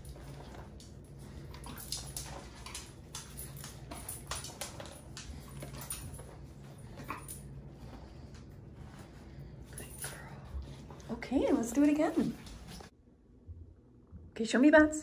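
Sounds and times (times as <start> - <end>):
dog nails clicking on floor: 0.0 - 8.5
steady low hum: 0.0 - 15.0.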